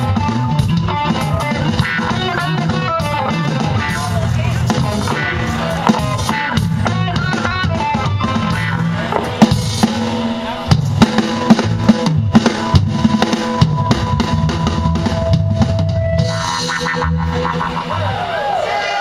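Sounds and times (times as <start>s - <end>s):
drum kit playing: 0.0s - 18.0s
bass guitar: 0.0s - 19.0s
electric guitar: 0.0s - 19.0s.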